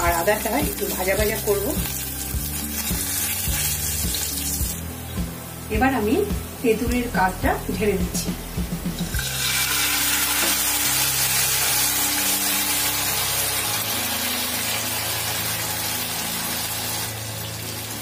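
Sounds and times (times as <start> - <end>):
liquid sizzling in hot oil: 0.0 - 18.0.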